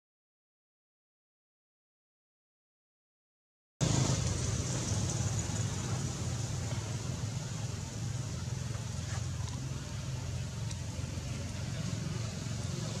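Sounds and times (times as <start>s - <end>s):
constant high hiss: 3.8s - 13.0s
low engine hum: 3.8s - 13.0s.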